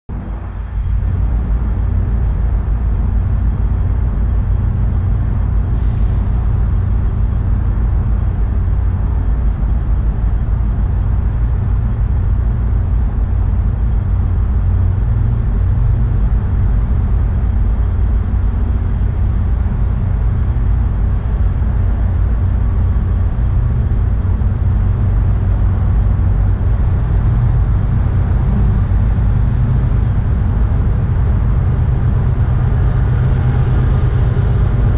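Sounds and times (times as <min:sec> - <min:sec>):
wind buffeting microphone: 0:00.1 - 0:34.9.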